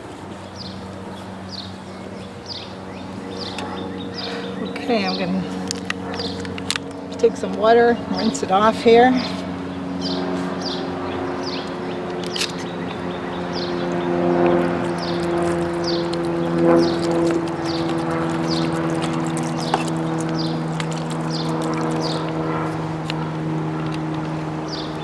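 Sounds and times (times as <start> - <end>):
engine droning: 0.0 - 25.0
bird chirping: 0.4 - 5.5, 9.2 - 22.4.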